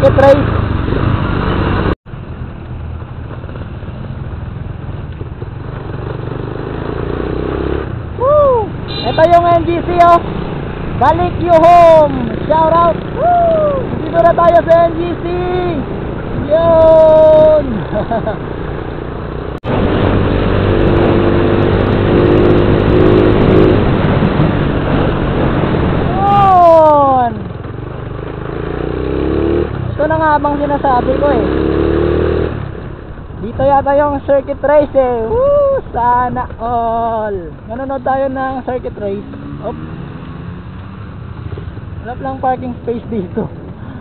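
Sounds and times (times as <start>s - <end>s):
motorcycle engine running: 0.0s - 8.2s, 9.2s - 33.3s
road and wind noise: 0.0s - 44.0s
wind rushing: 18.7s - 26.6s.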